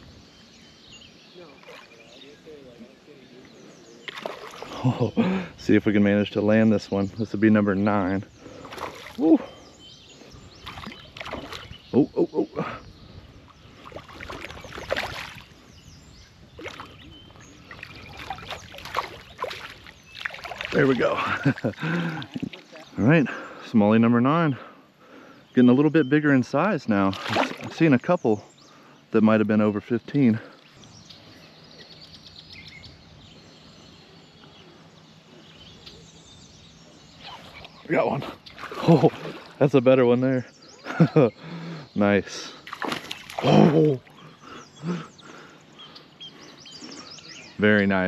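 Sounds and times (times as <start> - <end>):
bird chirps: 0.0 - 48.0
outdoor background wash: 0.0 - 48.0
river water splashing: 1.4 - 3.0, 3.9 - 5.6, 8.3 - 9.8, 10.4 - 12.0, 13.5 - 15.7, 16.4 - 23.0, 26.9 - 28.0, 37.1 - 39.9, 42.5 - 45.6
water rushing: 17.6 - 23.2, 26.9 - 28.0.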